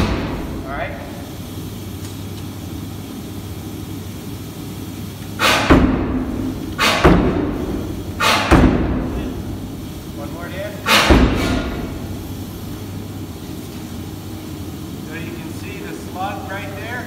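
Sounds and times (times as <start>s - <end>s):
steady low hum: 0.0s - 17.0s
air hammer striking hot steel: 5.4s - 9.6s, 10.8s - 12.1s.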